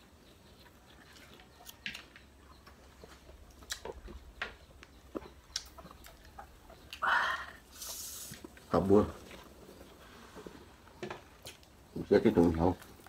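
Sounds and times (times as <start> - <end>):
chewing and lip smacks: 0.6 - 7.0, 11.4 - 11.8.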